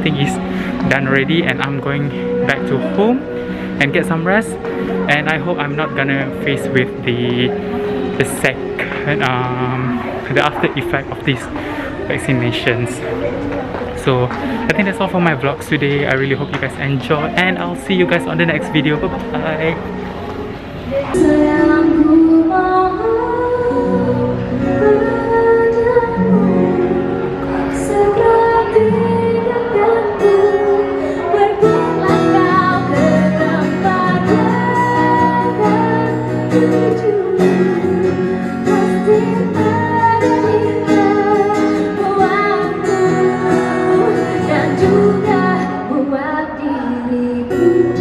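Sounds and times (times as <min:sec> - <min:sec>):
person singing: 0:00.0 - 0:13.3, 0:20.9 - 0:48.0
acoustic guitar: 0:00.0 - 0:48.0.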